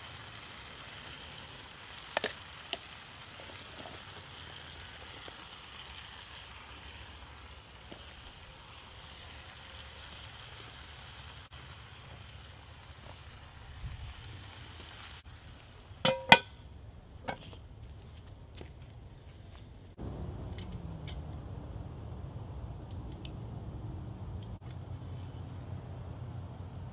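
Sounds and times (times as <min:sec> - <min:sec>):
food sizzling in a pot: 0:00.0 - 0:16.6
metal lid clanking on pot: 0:16.0 - 0:16.6.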